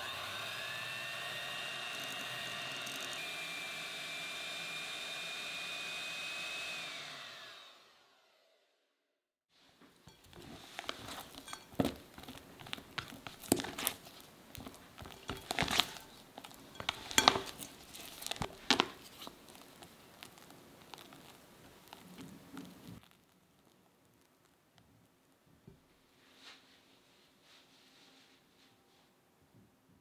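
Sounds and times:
spatula scraping buttercream: 0.0 - 7.1, 10.1 - 23.7.

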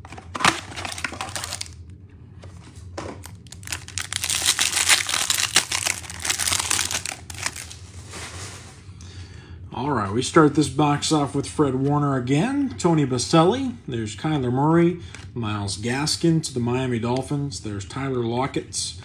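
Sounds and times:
plastic wrapper crinkling: 0.1 - 1.8, 3.2 - 7.8
cardboard box tearing: 0.3 - 1.7.

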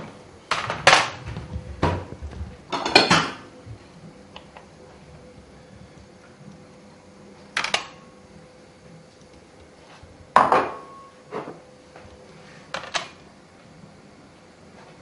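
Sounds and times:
dishes clattering on counter: 2.7 - 3.5, 10.4 - 11.6.

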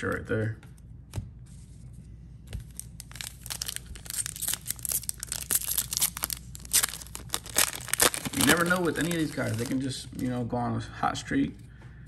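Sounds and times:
foil wrapper crinkling and tearing: 2.6 - 10.0.

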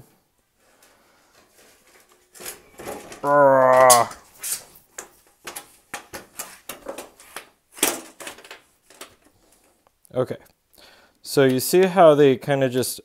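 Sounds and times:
sheet metal clicking and scraping: 0.8 - 9.8.

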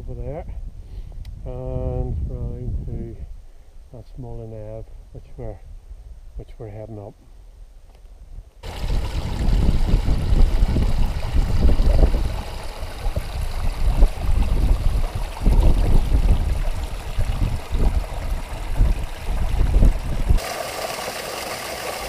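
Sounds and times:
wind buffeting microphone: 0.3 - 3.5, 8.2 - 20.4
stream splashing over boulders: 8.6 - 22.0.

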